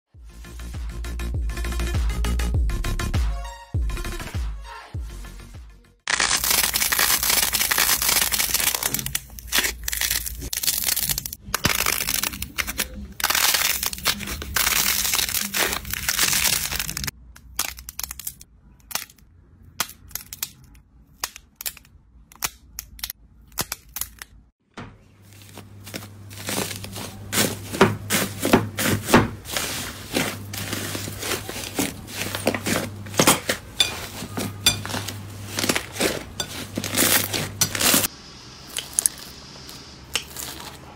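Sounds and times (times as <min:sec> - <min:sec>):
slime crackling: 0:06.1 - 0:19.2, 0:25.3 - 0:38.1.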